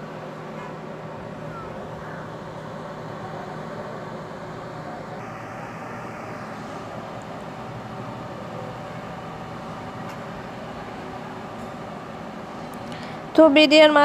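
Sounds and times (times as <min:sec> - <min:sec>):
paving machine engine running: 0:00.0 - 0:14.0
street noise: 0:00.0 - 0:14.0.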